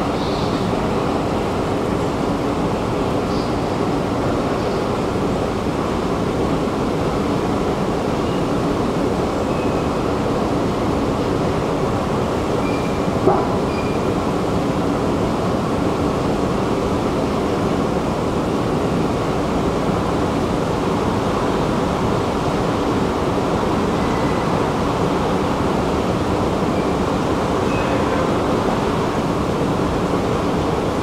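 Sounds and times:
faint high squeaks: 13.7s - 14.1s.

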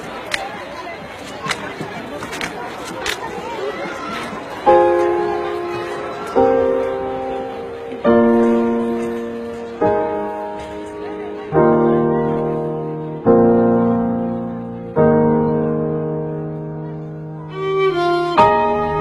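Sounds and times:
slow piano chords: 4.6s - 19.0s.

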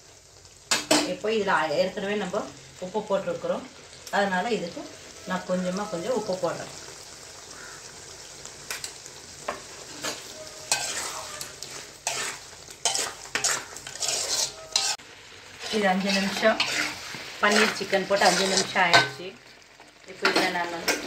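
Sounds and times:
frying sizzle: 0.0s - 21.0s
spoon scraping metal pot: 9.9s - 15.0s, 15.6s - 19.2s.

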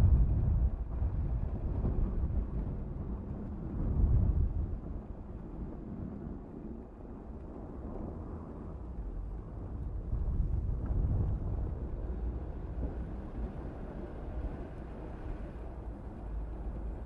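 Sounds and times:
car engine and road noise: 10.4s - 17.0s.

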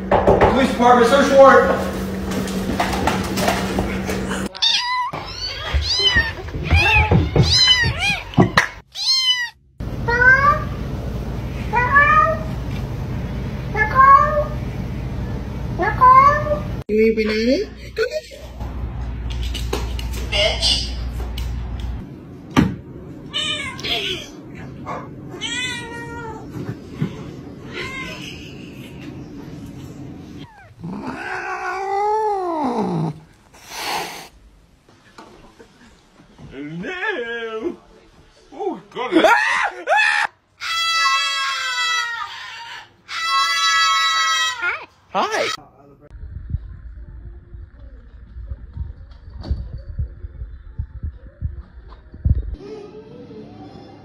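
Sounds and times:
cat meowing: 4.5s - 10.6s, 30.4s - 33.2s
kitten mewing: 30.4s - 34.3s
low steady hum: 45.6s - 53.2s
noisy background: 45.6s - 54.0s.

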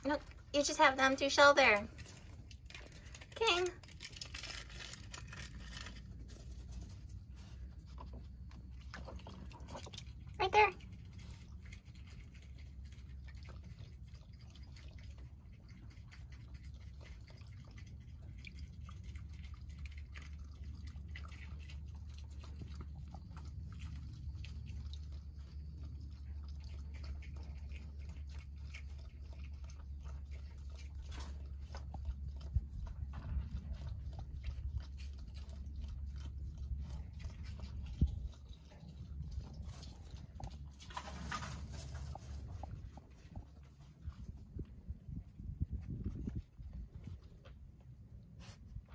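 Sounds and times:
steady low rumble: 0.0s - 48.9s
paws splashing in water: 6.7s - 44.6s.

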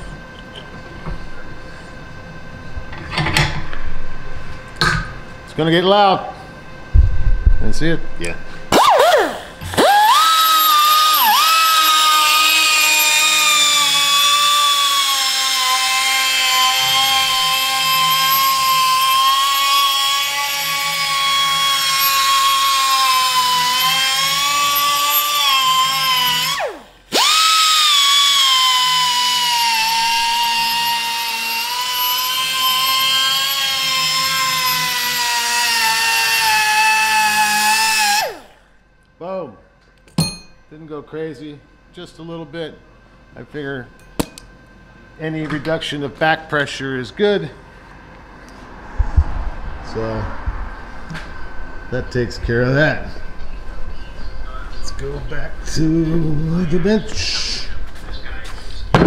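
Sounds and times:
die grinder whine on metal: 6.8s - 38.8s.

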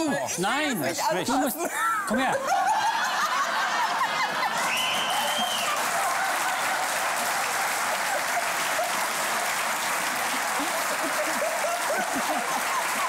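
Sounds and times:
audience applauding: 2.6s - 13.0s
high whistle: 4.7s - 5.8s.

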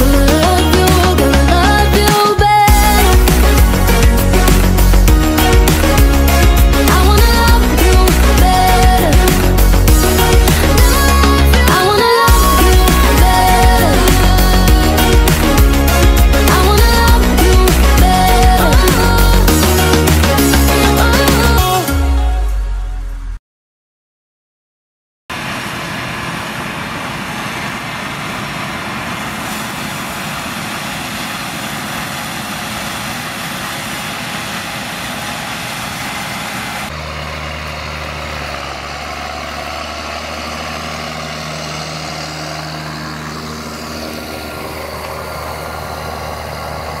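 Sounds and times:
combine harvester running: 0.0s - 21.9s, 25.3s - 47.0s
tractor diesel engine droning: 0.0s - 23.4s, 25.3s - 47.0s.

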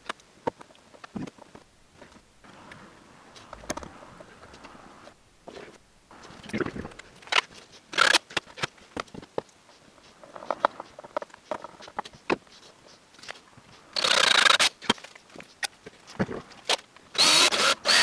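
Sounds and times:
cordless drill driving screw: 14.0s - 14.7s, 17.2s - 18.0s.

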